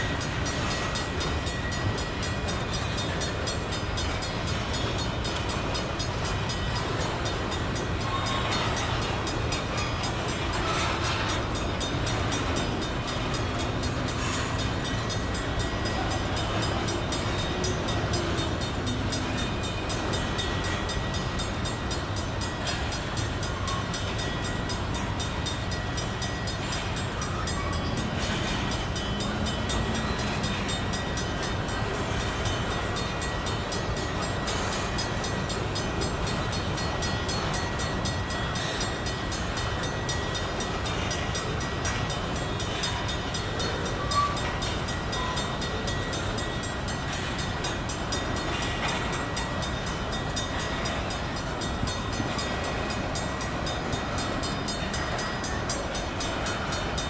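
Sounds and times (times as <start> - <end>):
train wheels rolling on rail: 0.0 - 57.0.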